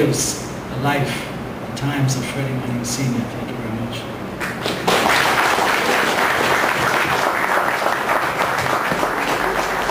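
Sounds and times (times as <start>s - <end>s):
audience applauding: 4.6s - 9.9s.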